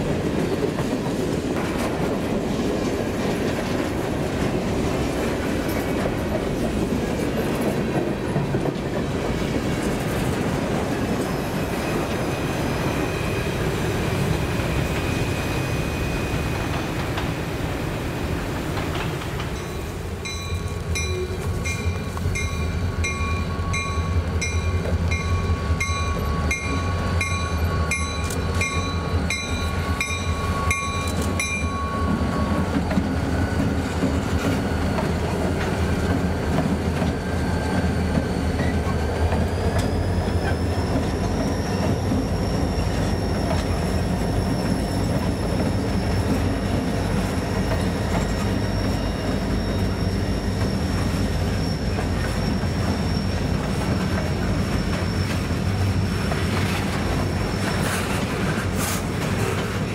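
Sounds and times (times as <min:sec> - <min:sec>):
train wheels clacking: 0:00.0 - 0:17.8, 0:18.4 - 0:59.9
diesel locomotives rumbling: 0:00.0 - 0:59.9
steel wheel squeal: 0:11.2 - 0:17.0, 0:19.5 - 0:59.9
crossing bell ringing: 0:19.5 - 0:32.8.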